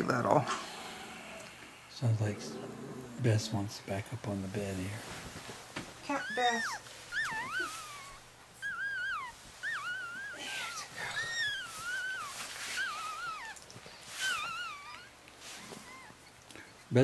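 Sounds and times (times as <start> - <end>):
dog whining: 6.1 - 16.4.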